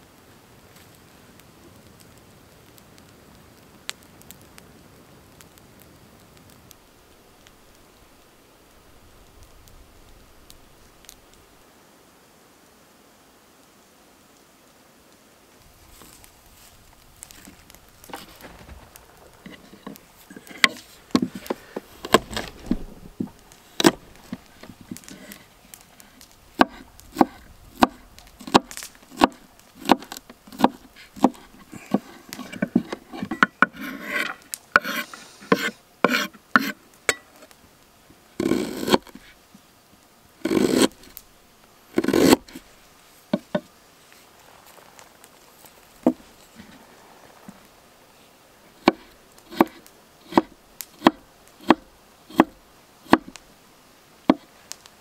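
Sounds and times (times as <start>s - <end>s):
knife chopping on wooden board: 22.0s - 22.5s, 26.6s - 33.3s, 34.0s - 36.7s, 42.0s - 42.4s.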